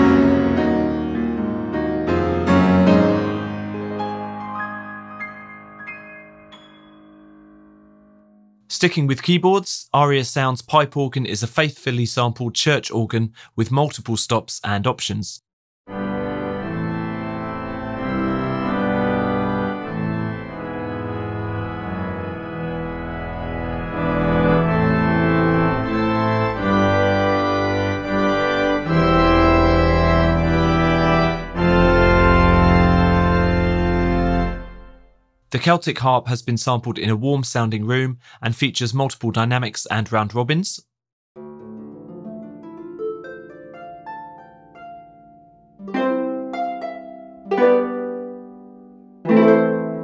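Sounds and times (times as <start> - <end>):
harp chords ringing: 0.0 - 8.6, 41.4 - 50.0
deep organ pedal bass: 15.9 - 35.1
pipe organ playing sustained chords: 15.9 - 35.1
plucked harp notes: 41.4 - 50.0.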